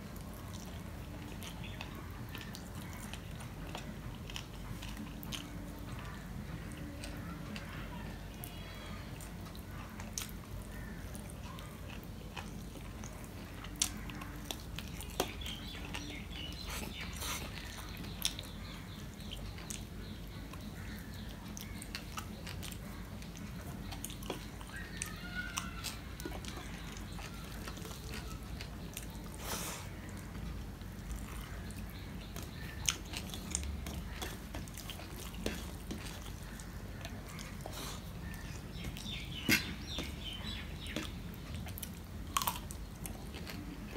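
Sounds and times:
chewing: 0:00.0 - 0:43.9
fingers mixing food on steel plate: 0:09.5 - 0:42.1.

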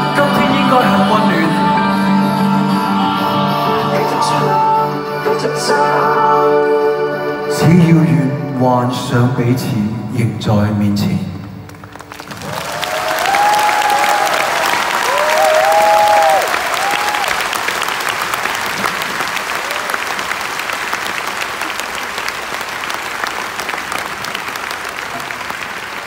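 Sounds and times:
audience applauding: 0:11.4 - 0:26.0
gliding cheers: 0:12.3 - 0:17.7, 0:19.2 - 0:20.3.

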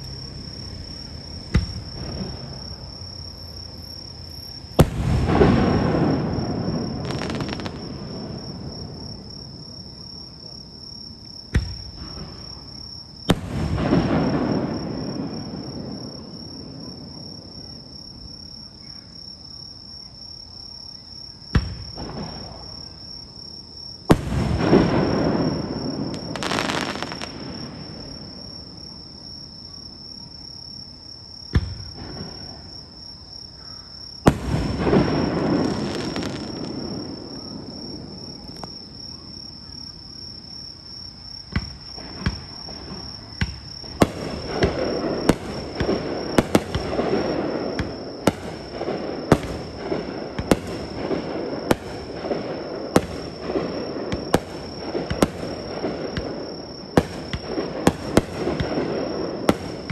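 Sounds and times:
fireworks crackling: 0:00.0 - 0:09.5, 0:13.2 - 0:16.4, 0:24.1 - 0:28.6, 0:34.2 - 0:38.8, 0:41.6 - 0:59.9.

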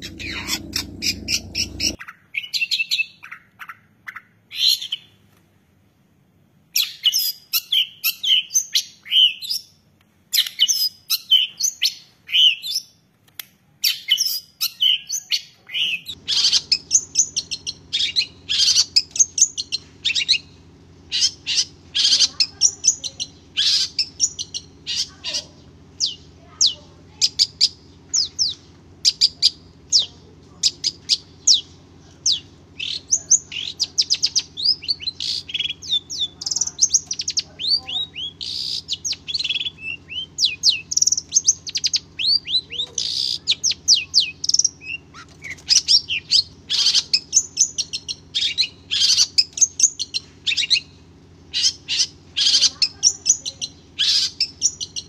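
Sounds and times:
bird singing chirps and whistles: 0:32.3 - 0:50.9.

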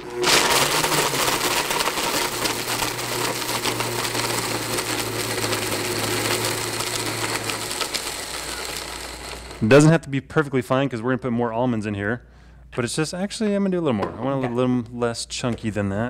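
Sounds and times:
blender grinding almonds: 0:00.0 - 0:09.9.

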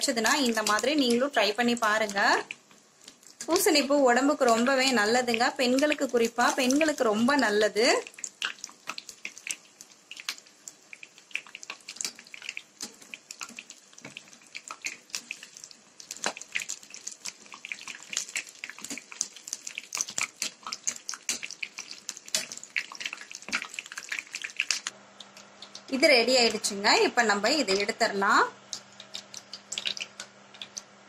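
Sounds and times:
oil crackling and popping: 0:00.0 - 0:26.7, 0:28.6 - 0:30.9
food deep-frying in hot oil: 0:00.0 - 0:31.0.

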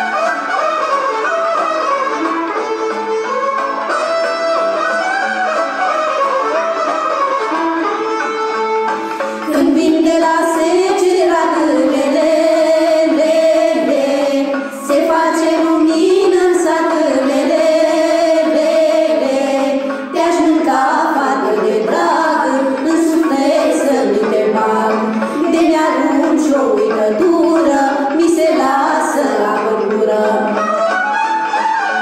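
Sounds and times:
instrumental music: 0:00.0 - 0:32.0
women singing folk song together: 0:09.4 - 0:30.6.

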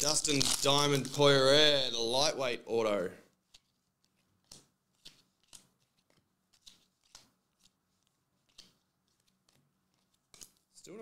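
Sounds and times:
trading cards sliding by hand: 0:03.4 - 0:10.7.

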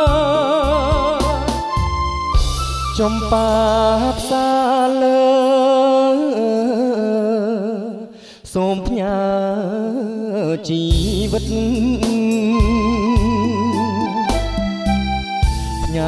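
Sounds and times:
backing band: 0:00.0 - 0:04.9, 0:10.9 - 0:16.0
man singing with vibrato: 0:00.0 - 0:16.0.

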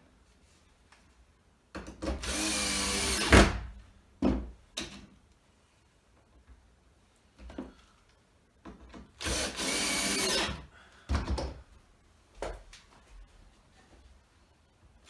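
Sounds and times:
cordless drill driving a screw: 0:02.2 - 0:03.4, 0:09.2 - 0:10.6.

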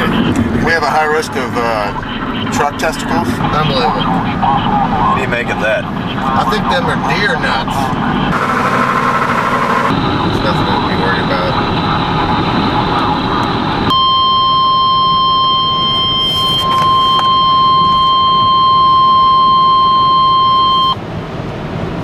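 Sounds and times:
vehicle cabin noise: 0:00.0 - 0:21.1
high electronic alert tone: 0:13.9 - 0:21.0.

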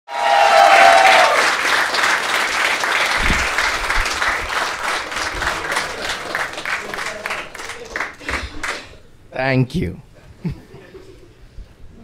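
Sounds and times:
audience applauding: 0:00.1 - 0:08.9.

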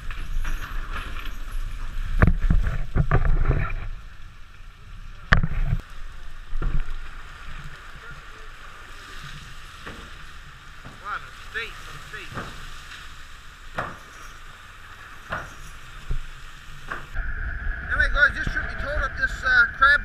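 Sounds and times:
wind rumble on microphone: 0:00.0 - 0:08.0, 0:15.2 - 0:20.0
water sloshing: 0:00.0 - 0:20.0.

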